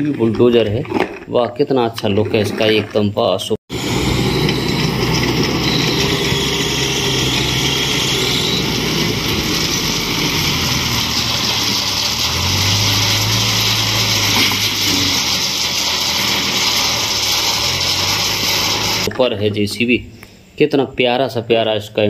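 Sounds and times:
diesel engine running: 3.7s - 19.1s.

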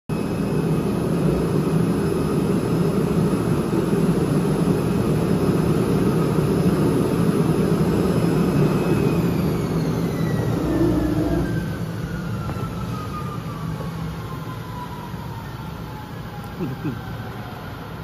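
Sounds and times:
faint high whine: 8.3s - 12.7s
cutting machine drone: 8.8s - 12.0s.

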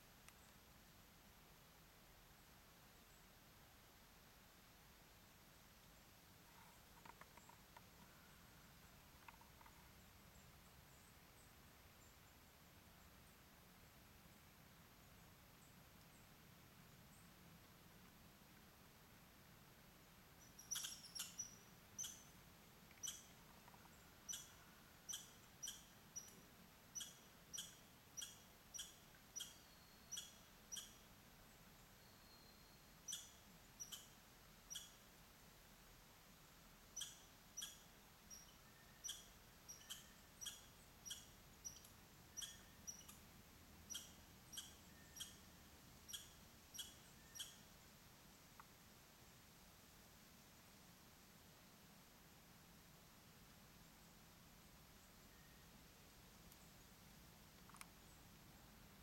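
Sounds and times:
small animal chirping: 20.4s - 26.4s, 27.0s - 31.1s, 33.1s - 35.0s, 37.0s - 43.2s, 43.9s - 45.5s, 46.1s - 47.6s.

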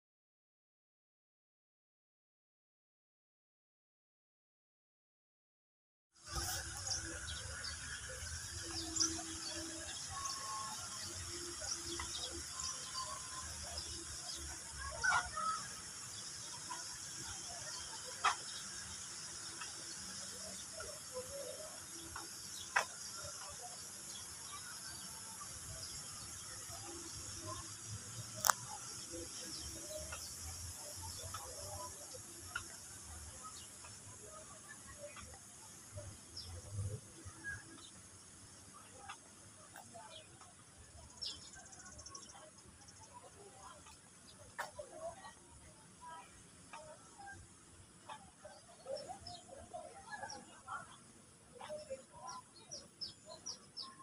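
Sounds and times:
high-pitched hiss: 6.3s - 47.4s
small birds chirping: 6.3s - 54.0s.

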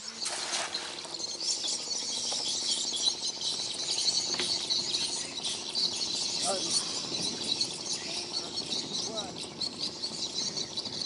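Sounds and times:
net splashing into water: 0.2s - 0.9s.

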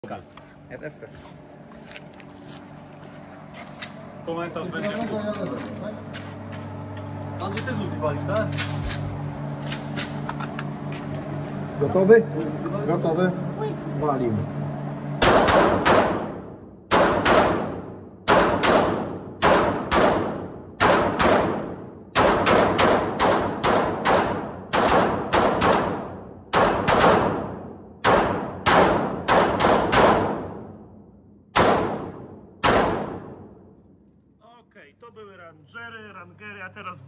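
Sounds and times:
pistol shots echoing indoors: 15.2s - 33.9s.

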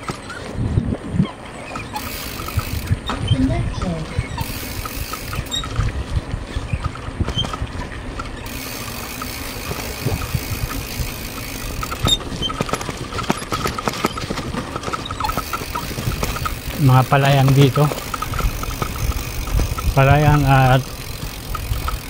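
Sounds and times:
tyres rumbling on concrete road: 0.0s - 22.0s
wind buffeting microphone: 0.0s - 22.0s
light rapid ticking: 1.7s - 5.9s, 8.2s - 22.0s.

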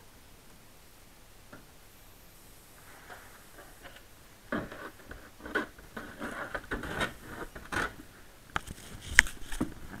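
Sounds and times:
hood scraping against shell: 2.8s - 8.1s.

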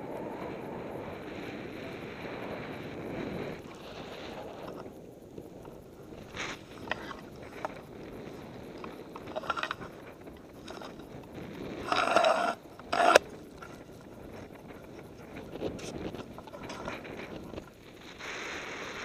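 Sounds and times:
camera handling clicks and rustling: 8.8s - 9.9s, 11.9s - 13.8s.

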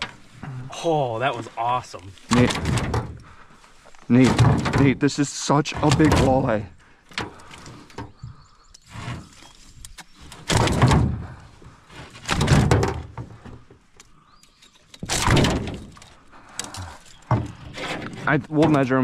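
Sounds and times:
scraping on metal canoe floor: 5.6s - 13.7s, 16.9s - 19.0s
small clicks and knocks: 5.8s - 11.1s.

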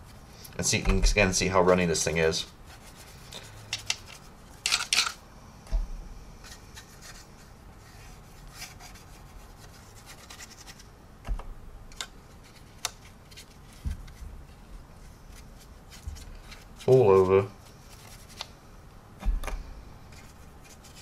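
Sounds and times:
paintbrush scrubbing on plastic: 1.4s - 4.4s.

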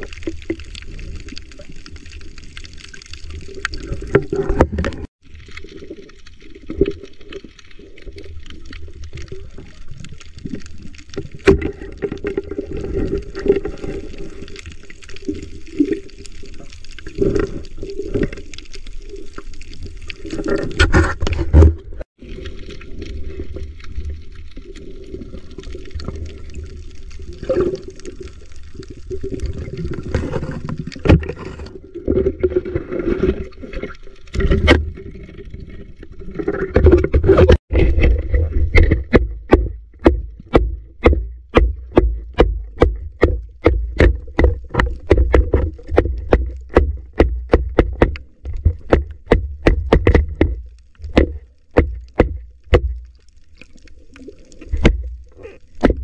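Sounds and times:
water sloshing underwater: 0.0s - 56.0s
bumps and knocks on camera: 38.7s - 53.0s.

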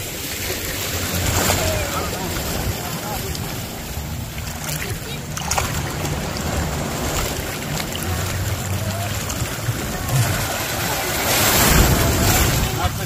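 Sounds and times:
sea water lapping around legs: 0.0s - 13.0s.

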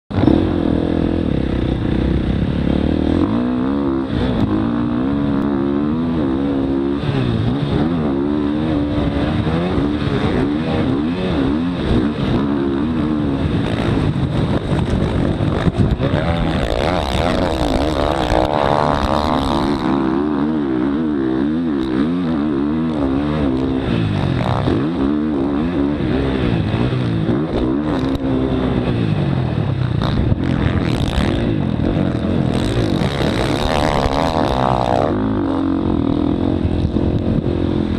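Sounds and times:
dirt bike engine revving: 0.1s - 37.9s.

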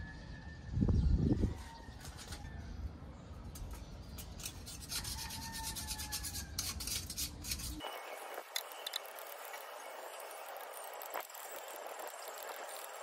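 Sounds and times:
metal tool scraping grill grate: 3.6s - 7.9s.

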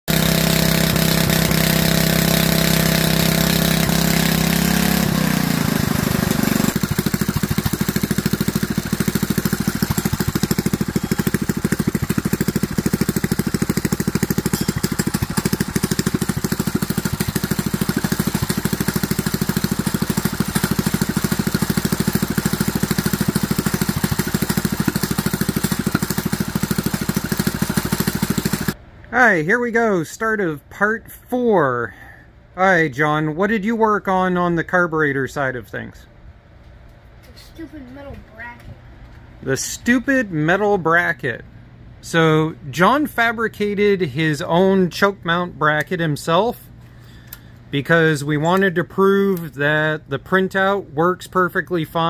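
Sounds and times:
small engine running: 0.1s - 28.8s.

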